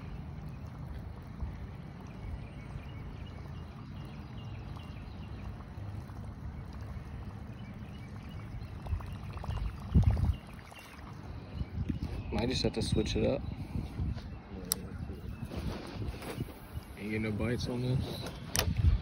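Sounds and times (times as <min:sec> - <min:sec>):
wind rumble on microphone: 0:00.0 - 0:19.0
microphone handling noise: 0:13.6 - 0:17.0.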